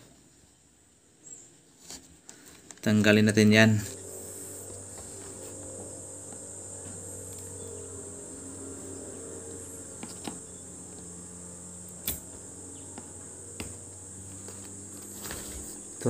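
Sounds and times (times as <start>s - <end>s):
low hum: 2.8s - 16.0s
soldering iron light clicks: 12.0s - 12.3s.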